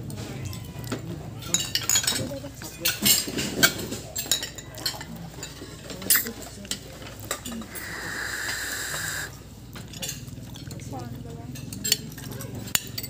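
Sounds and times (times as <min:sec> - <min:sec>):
cutlery clinking on plates: 0:00.1 - 0:07.8, 0:11.5 - 0:13.0
steady hiss: 0:07.7 - 0:09.4.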